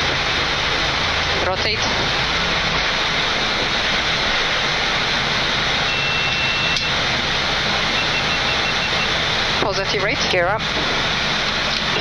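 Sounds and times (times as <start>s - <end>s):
runway rumble: 0.0s - 5.9s, 6.8s - 12.0s
jet engine and airflow roar: 0.0s - 12.0s
high beep: 5.9s - 7.0s, 7.9s - 9.1s.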